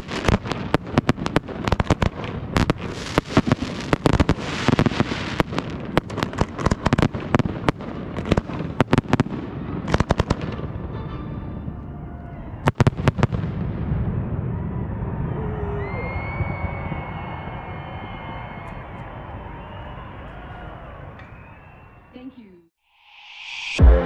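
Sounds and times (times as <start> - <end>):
firework crackling: 0.0 - 10.6
firework bangs: 0.0 - 10.9, 12.6 - 15.4.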